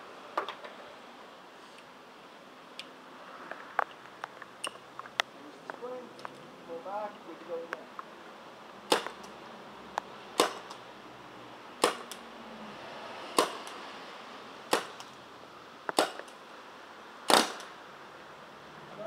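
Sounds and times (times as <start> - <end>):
paintball pistol shots: 8.9 - 9.3, 10.4 - 10.8, 11.8 - 12.2, 13.4 - 13.8, 14.7 - 15.1, 15.9 - 16.3, 17.3 - 17.7.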